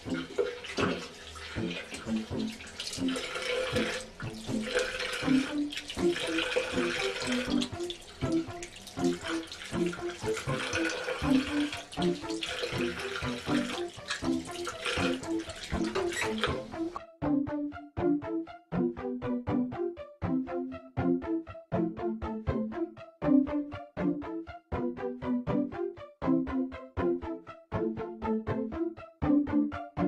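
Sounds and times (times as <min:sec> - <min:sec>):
water running: 0:00.0 - 0:17.0.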